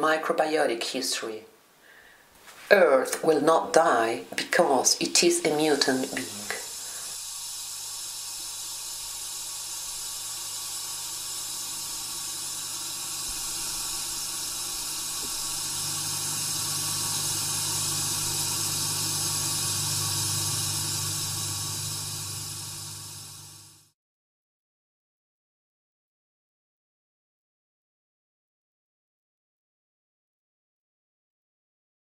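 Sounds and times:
hissing ambient drone: 4.4s - 23.9s.

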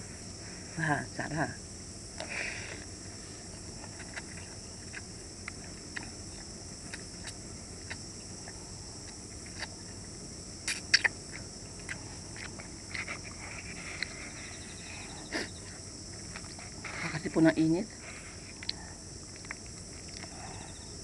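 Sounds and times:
steady high hiss: 0.0s - 21.0s
slurping and chewing noodles: 10.6s - 15.6s.

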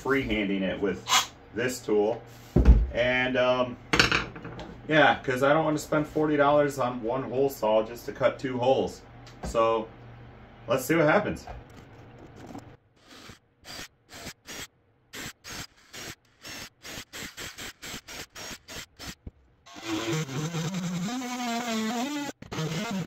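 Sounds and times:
cordless drill boring holes: 13.0s - 23.0s
cutting tool whine: 19.7s - 23.0s.

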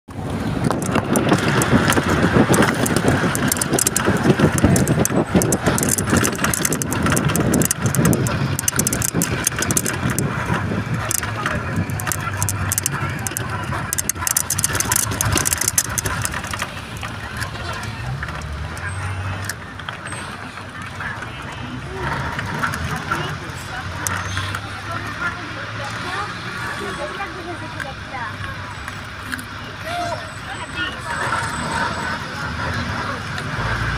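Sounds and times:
vehicle road and engine noise: 0.1s - 33.9s.

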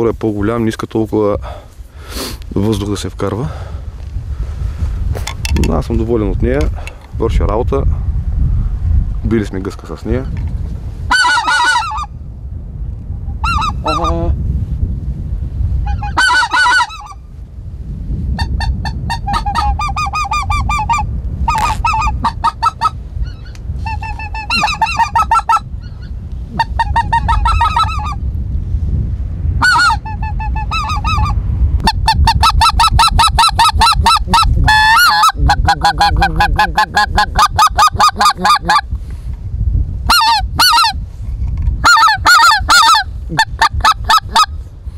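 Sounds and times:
wind rumble on microphone: 0.0s - 44.9s
goose call honks and yelps: 11.1s - 12.1s, 13.4s - 14.2s, 15.9s - 17.2s, 18.4s - 25.7s, 26.6s - 28.2s, 29.6s - 38.9s, 40.1s - 41.0s, 41.8s - 44.5s.

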